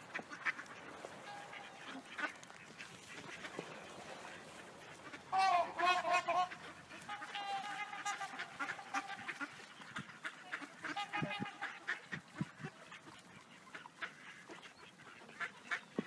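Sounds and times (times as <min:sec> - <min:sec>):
ducks quacking: 0:00.0 - 0:16.0.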